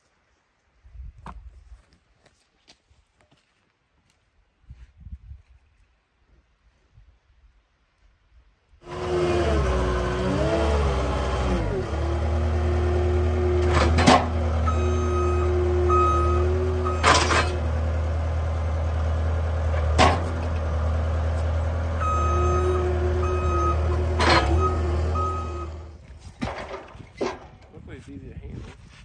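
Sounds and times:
diesel engine droning: 0:08.8 - 0:26.0
reversing alarm beeps: 0:14.7 - 0:17.1, 0:22.0 - 0:23.9, 0:24.5 - 0:25.8.

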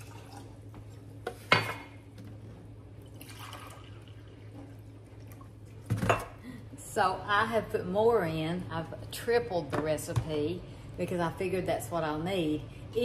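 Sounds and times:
vinegar pouring into a saucepan: 0:03.1 - 0:05.5.

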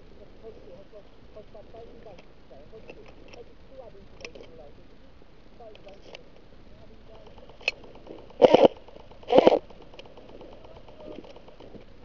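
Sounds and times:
airsoft gun full-auto bursts: 0:07.2 - 0:11.8.

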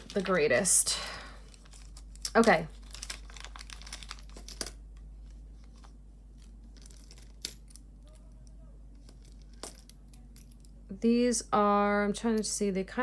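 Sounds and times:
faint plastic crinkling: 0:00.0 - 0:07.3.

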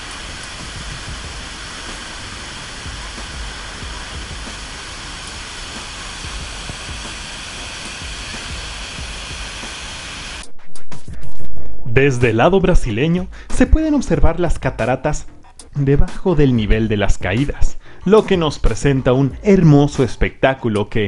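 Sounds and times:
waterfall roaring: 0:00.0 - 0:10.4.

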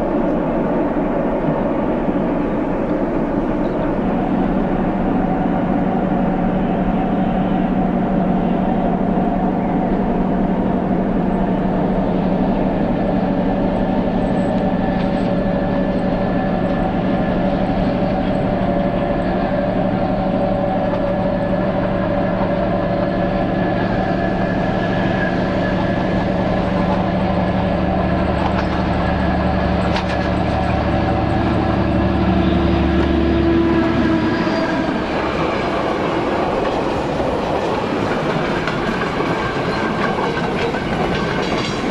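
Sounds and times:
diesel locomotive engines droning: 0:00.0 - 0:41.9
train wheel clatter: 0:12.4 - 0:41.9.

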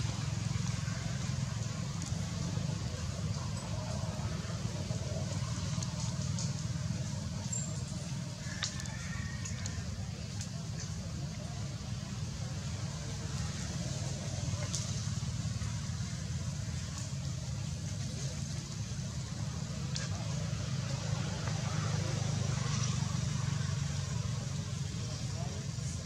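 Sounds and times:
soft outdoor hiss: 0:00.0 - 0:26.0
steady low rumble: 0:00.0 - 0:26.0
faint clicks: 0:07.4 - 0:11.4.

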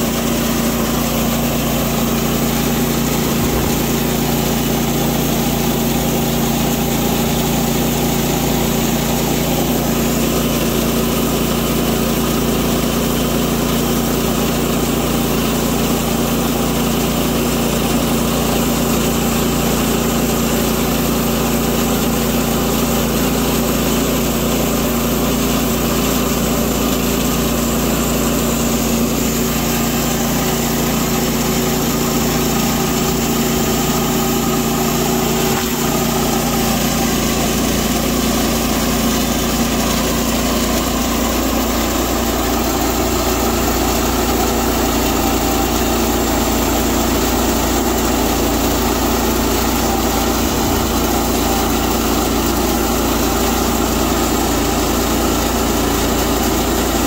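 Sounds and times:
bandsaw sawmill engine running: 0:00.0 - 0:57.0
band blade cutting wood: 0:02.5 - 0:04.6.

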